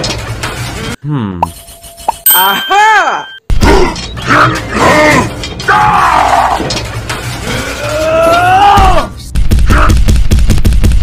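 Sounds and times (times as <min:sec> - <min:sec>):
person yelling: 0:02.4 - 0:03.2.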